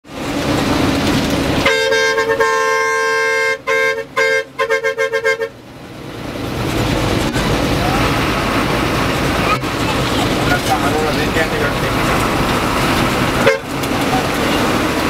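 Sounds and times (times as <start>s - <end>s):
bus engine rumble: 0.0s - 15.0s
road noise: 0.0s - 15.0s
bus horn honking: 1.4s - 5.7s, 13.1s - 15.0s.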